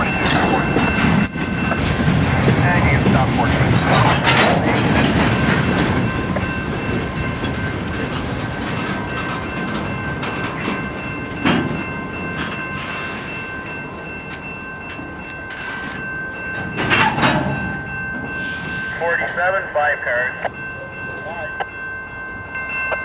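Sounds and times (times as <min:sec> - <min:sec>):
high-pitched ringing tone: 0:00.0 - 0:01.8
wheels clacking over rail joints: 0:00.0 - 0:12.9, 0:14.3 - 0:17.9
freight train wheels rumbling: 0:00.0 - 0:23.0.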